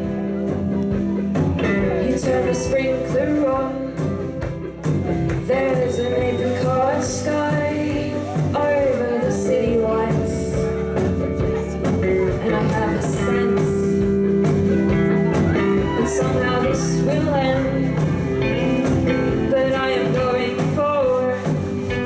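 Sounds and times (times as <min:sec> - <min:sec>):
electric guitar: 0:00.0 - 0:22.0
live band playing: 0:00.0 - 0:22.0
woman singing: 0:00.0 - 0:22.0.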